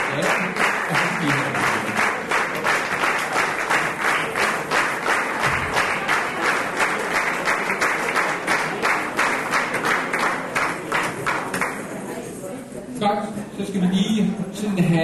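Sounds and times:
audience clapping in unison: 0.0s - 12.0s.

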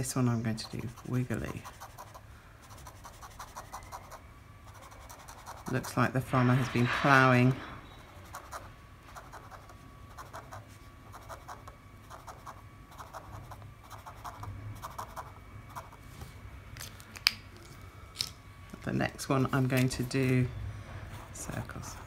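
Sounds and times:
felt-tip pen scratching on paper: 0.5s - 5.9s, 8.1s - 16.0s.

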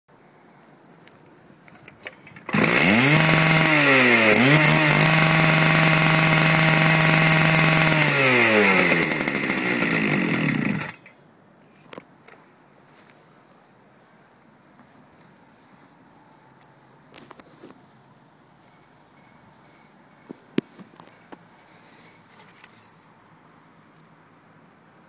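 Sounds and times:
cut-off saw engine running: 2.0s - 11.1s.

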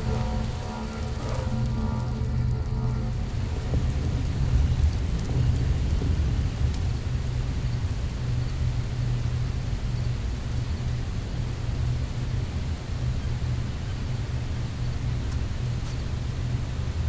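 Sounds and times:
low rumbling drone: 0.0s - 11.8s
even hiss of noise: 0.0s - 17.0s.

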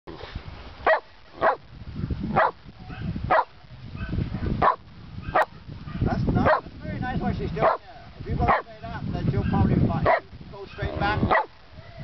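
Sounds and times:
dog barking: 0.9s - 1.6s, 2.4s - 6.7s, 7.6s - 7.8s, 8.5s - 8.7s, 9.4s - 11.5s.

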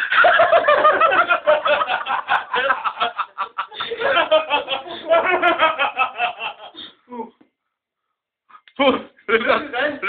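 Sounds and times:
people snickering and laughing: 0.0s - 6.9s.

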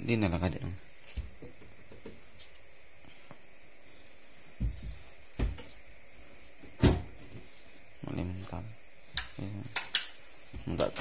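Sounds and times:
steady hiss: 0.0s - 11.0s.

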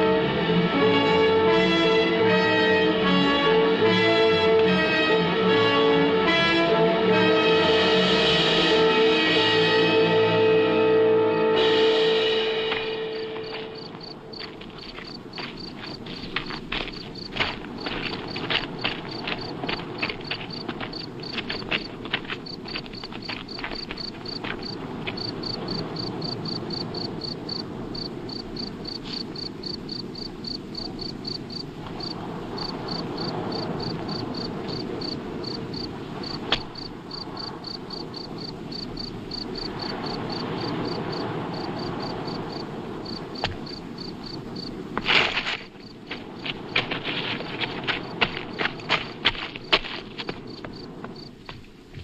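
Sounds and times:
outdoor ambience hiss: 0.0s - 52.0s
cricket chirping: 12.0s - 51.7s.

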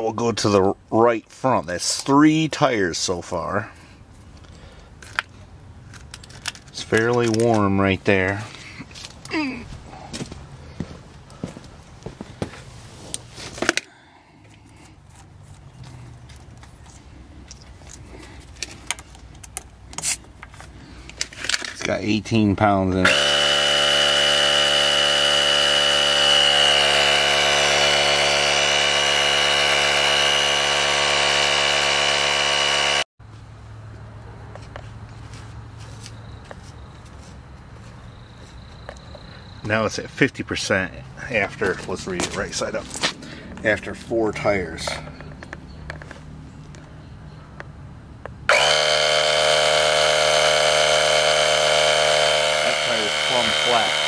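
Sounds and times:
air compressor motor humming: 23.0s - 33.1s, 48.5s - 54.0s
high steady whine: 23.0s - 33.1s, 48.5s - 54.0s.

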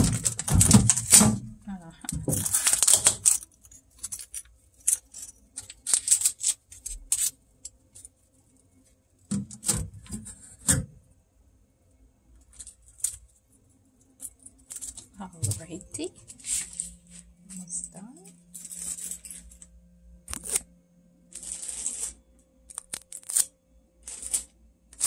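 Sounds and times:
tape ripping off plastic: 0.0s - 1.5s, 2.3s - 3.4s, 20.3s - 20.7s, 21.4s - 25.0s
tape crinkling in hand: 2.2s - 8.2s, 14.6s - 19.7s, 20.3s - 20.7s, 21.4s - 25.0s.

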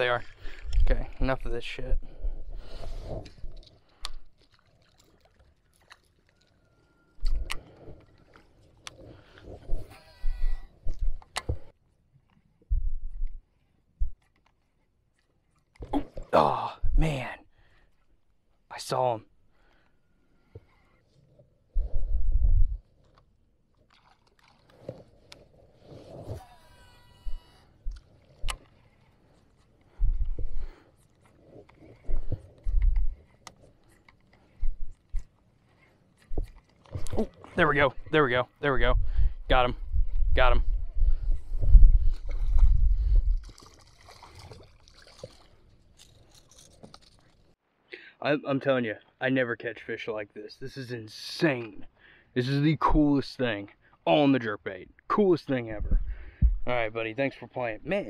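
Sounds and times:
low rumble on microphone: 21.7s - 22.9s, 29.9s - 30.8s, 38.8s - 43.6s, 55.7s - 56.8s.

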